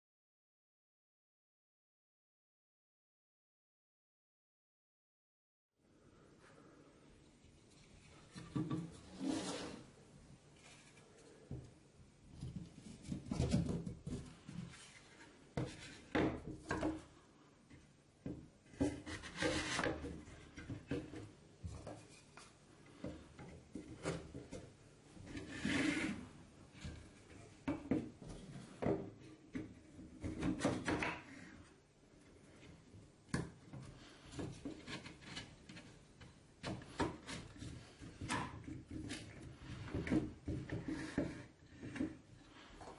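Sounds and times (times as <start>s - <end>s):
wood scraping: 7.6s - 11.7s, 18.7s - 31.6s, 33.8s - 42.9s.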